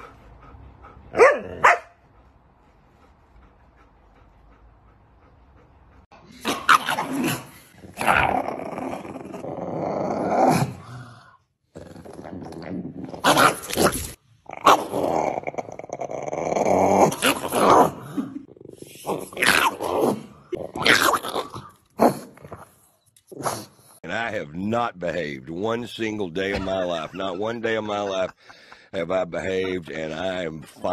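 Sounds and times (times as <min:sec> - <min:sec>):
dogs growling and grumbling: 0:04.2 - 0:24.0.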